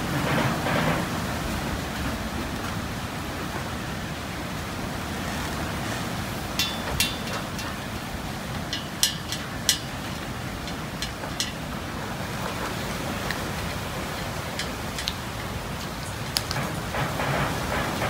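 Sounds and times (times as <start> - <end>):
steady rushing background noise: 0.0 - 18.0.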